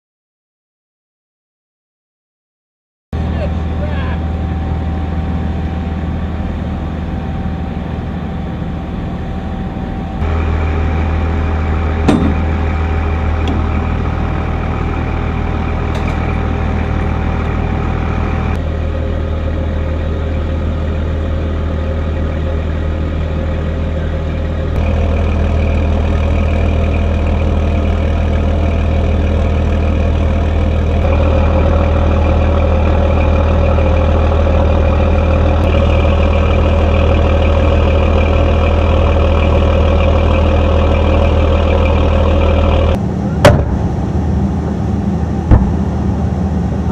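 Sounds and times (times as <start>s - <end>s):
diesel engines idling: 3.2s - 46.9s
sharp knock: 12.1s - 12.4s, 43.4s - 43.9s, 45.5s - 45.9s.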